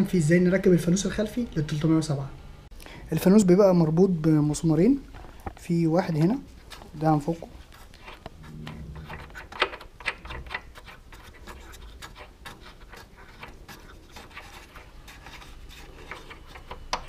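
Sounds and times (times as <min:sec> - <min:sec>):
screw clicking and scraping: 0:07.9 - 0:17.0.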